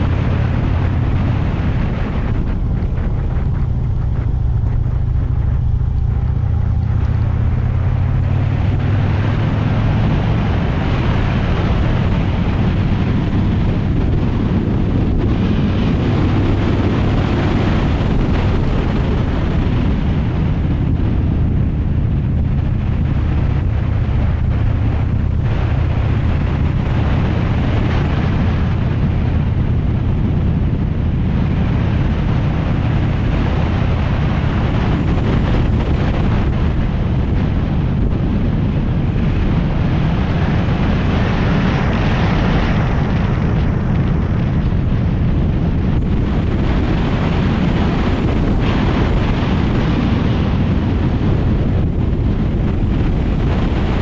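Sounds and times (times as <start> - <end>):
motorcycle engine running: 0.0 - 54.0
wind rushing over microphone: 0.0 - 54.0.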